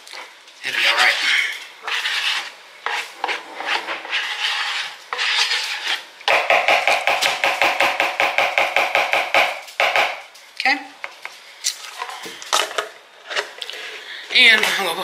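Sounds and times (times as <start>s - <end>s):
metal spoon scraping plastic tub: 0.1s - 6.1s.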